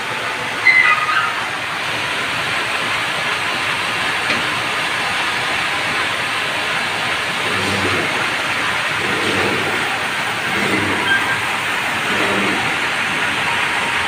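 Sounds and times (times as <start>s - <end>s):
log saw running: 6.5s - 13.9s.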